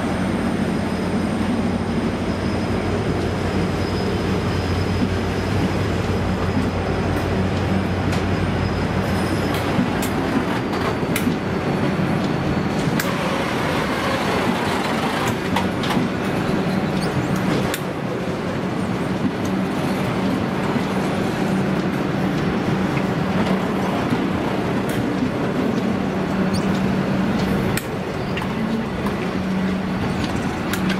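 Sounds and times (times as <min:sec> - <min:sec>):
train carriages rumbling past: 0:00.0 - 0:30.9
wheel clicks over rails: 0:13.0 - 0:16.2.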